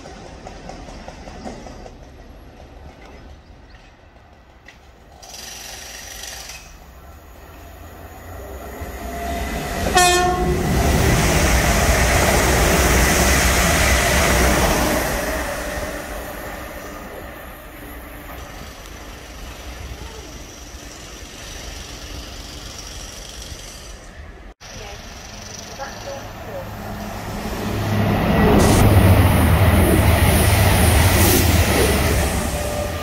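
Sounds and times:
approaching train rumble: 0.0 - 33.0
train wheels rushing on rail: 0.0 - 33.0
train two-note horn: 9.9 - 10.7.

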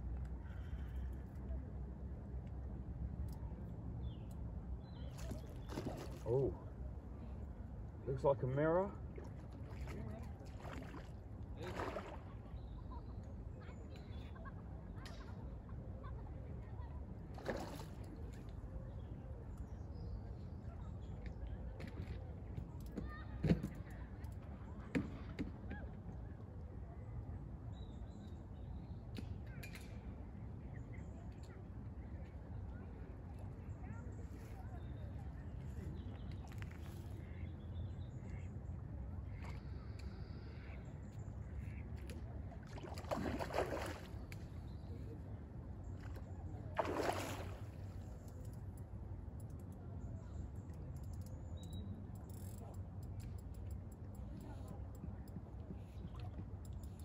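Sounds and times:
water splash: 42.7 - 44.2, 46.8 - 47.8.

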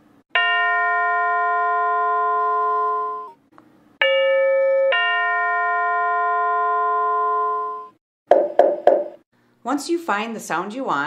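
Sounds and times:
doorbell ding-dong chime: 0.4 - 3.4, 4.0 - 7.9
electronic ringing tone: 0.7 - 3.4, 4.1 - 9.2.

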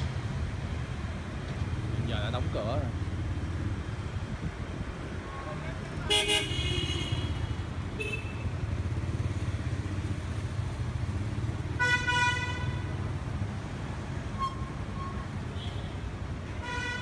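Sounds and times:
traffic rumble: 0.0 - 17.0
vehicle horns honking: 6.1 - 8.6, 11.8 - 12.9, 14.4 - 16.0, 16.6 - 17.0.

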